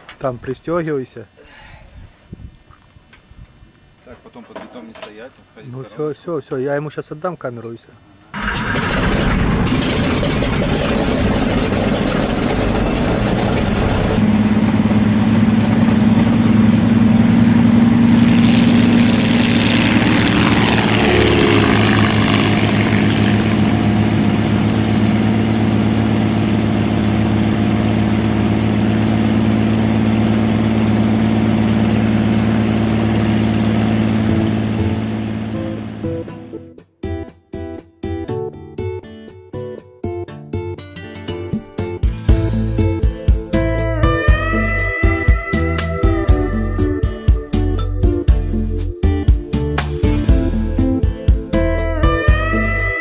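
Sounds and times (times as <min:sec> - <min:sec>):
light aircraft engine droning: 0:08.4 - 0:36.5.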